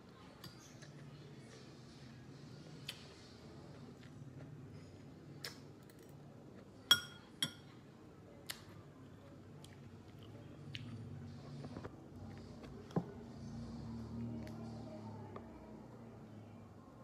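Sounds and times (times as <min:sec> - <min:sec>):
metal spoon clinking on dish: 0:06.9 - 0:07.7.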